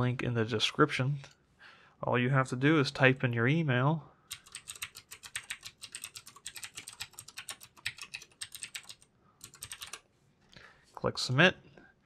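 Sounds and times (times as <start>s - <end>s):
typing on a computer keyboard: 4.3s - 10.0s.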